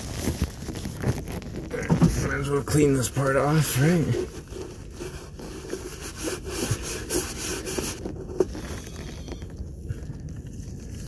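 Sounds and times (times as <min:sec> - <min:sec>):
rag rubbing on plastic: 0:01.0 - 0:08.8.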